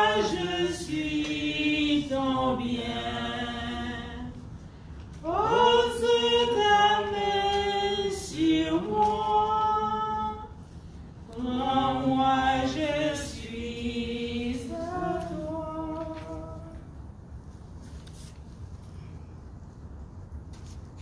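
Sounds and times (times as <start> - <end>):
congregation singing a hymn: 0.0 - 4.6, 5.2 - 16.9.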